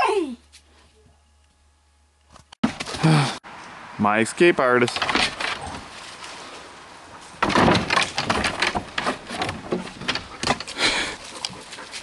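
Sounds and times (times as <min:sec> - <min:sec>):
dog scrambling over fence: 0:04.9 - 0:06.0, 0:07.3 - 0:10.8.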